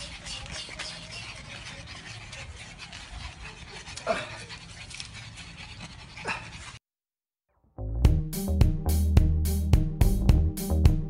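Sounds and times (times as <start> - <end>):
dog crying: 0.0 - 4.8
dogs panting: 0.0 - 6.8.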